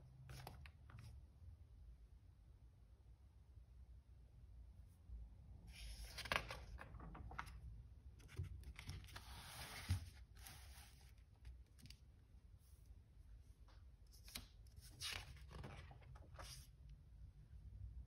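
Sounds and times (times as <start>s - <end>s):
paper rustling: 5.8s - 7.6s, 8.2s - 12.0s, 14.1s - 16.7s.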